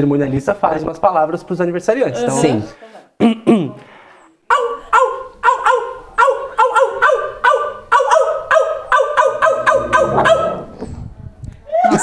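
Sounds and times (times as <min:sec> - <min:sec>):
man imitating dog yaps: 0:04.5 - 0:10.8, 0:11.7 - 0:12.0.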